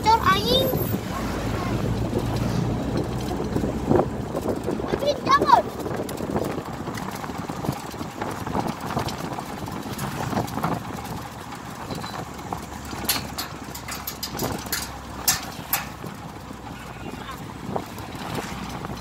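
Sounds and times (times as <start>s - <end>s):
wind and road noise: 0.0s - 19.0s
sharp clicking knocks: 11.9s - 16.2s.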